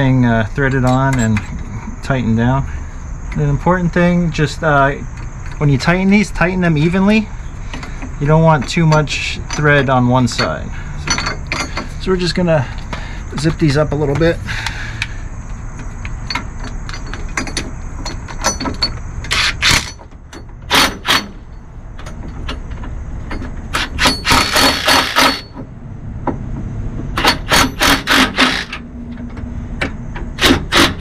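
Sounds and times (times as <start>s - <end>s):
impact driver hammering: 20.7s - 21.4s, 23.7s - 25.6s, 27.2s - 28.8s, 30.4s - 31.0s.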